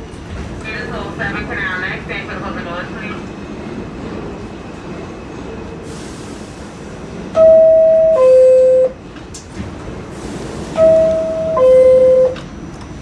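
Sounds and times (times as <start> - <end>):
subway car rumble: 0.0 - 13.0
two-note door chime: 10.8 - 12.4.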